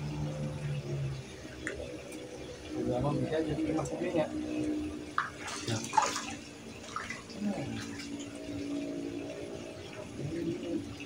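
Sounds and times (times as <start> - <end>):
quiet water noises: 0.0 - 11.0
splash in pond water: 5.2 - 8.2.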